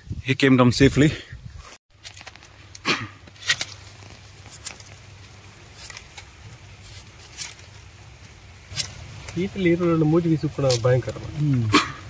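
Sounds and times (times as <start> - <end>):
sickle blade cutting fruit: 2.7 - 9.4.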